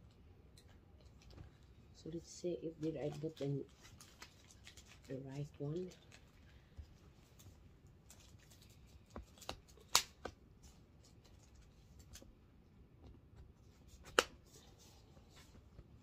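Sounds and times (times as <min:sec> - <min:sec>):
sharp plastic snap: 0:09.4 - 0:10.4, 0:14.0 - 0:14.4.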